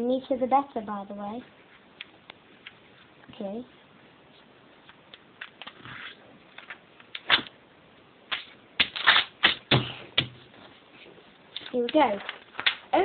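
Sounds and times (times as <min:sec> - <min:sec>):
paper being folded: 0:11.6 - 0:13.0.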